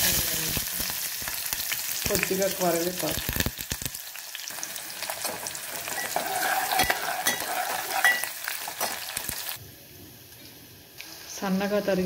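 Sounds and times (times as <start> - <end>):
vegetables sizzling in hot oil: 0.0 - 12.0
steel spoon scraping a pot: 5.1 - 9.2.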